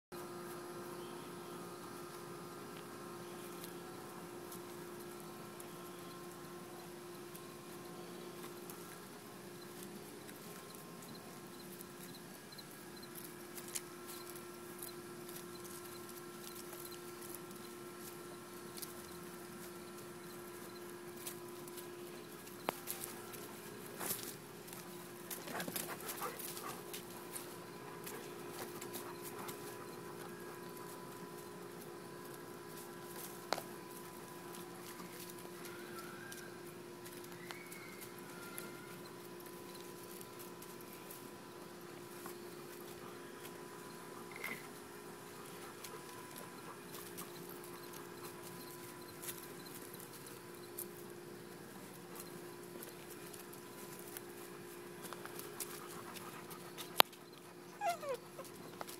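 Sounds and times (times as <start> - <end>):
steady low hum: 0.2 - 58.9
puppies whimpering and yipping: 55.4 - 58.9.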